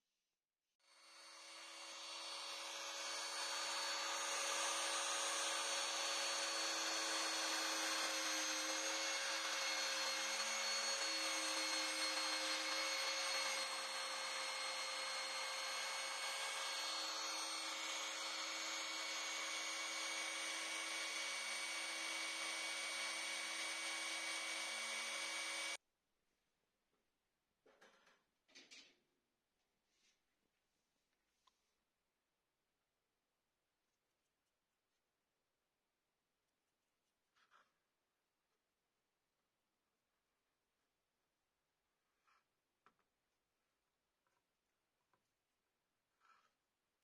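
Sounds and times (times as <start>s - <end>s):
wood router whining: 0.9s - 25.8s.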